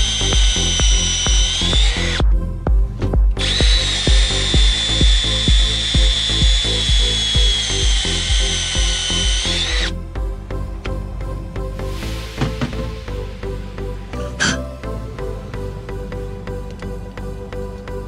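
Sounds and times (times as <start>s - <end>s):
cordless drill whining: 0.0s - 2.3s, 3.3s - 10.0s
background music with steady beat: 0.0s - 18.0s.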